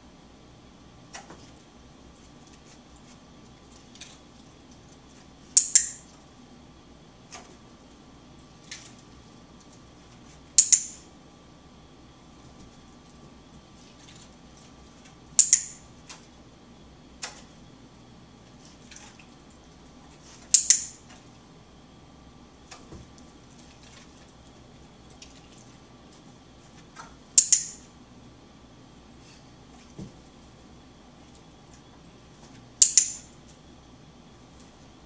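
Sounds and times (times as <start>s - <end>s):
training clicker double click: 15.4s - 15.8s, 27.4s - 27.8s, 32.8s - 33.3s.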